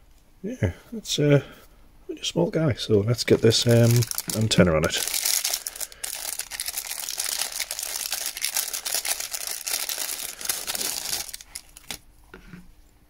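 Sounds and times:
plastic bag crinkling: 3.2s - 12.1s.

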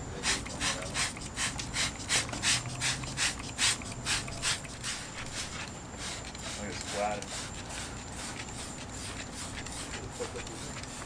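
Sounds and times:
short hissing strokes: 0.1s - 11.0s.

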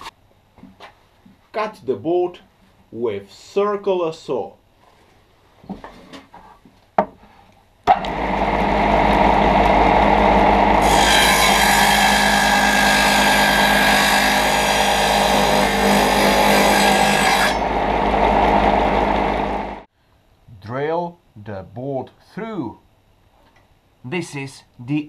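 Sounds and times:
saw cutting wooden board: 7.9s - 19.8s
circular saw motor hum: 7.9s - 19.9s.

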